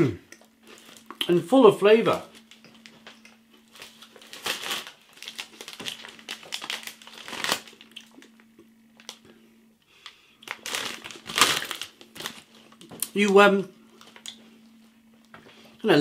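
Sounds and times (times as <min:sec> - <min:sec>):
crunchy snack sticks being chewed: 0:04.3 - 0:09.3.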